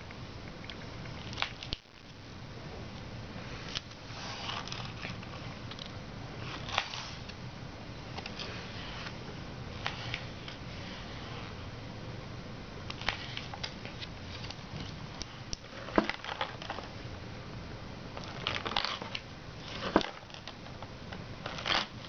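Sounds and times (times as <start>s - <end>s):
paper rustling and crinkling: 3.6s - 5.5s, 6.4s - 7.3s, 13.0s - 15.0s, 18.2s - 20.7s, 21.4s - 22.0s.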